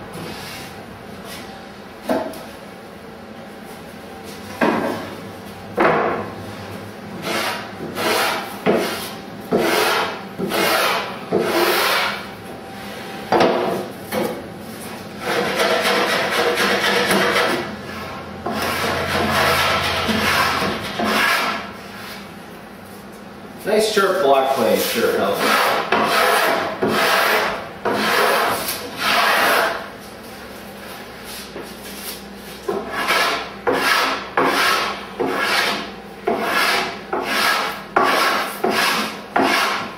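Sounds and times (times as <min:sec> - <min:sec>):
rasp scraping wood: 0:07.2 - 0:12.2, 0:15.2 - 0:22.2, 0:25.1 - 0:29.9, 0:32.7 - 0:39.9.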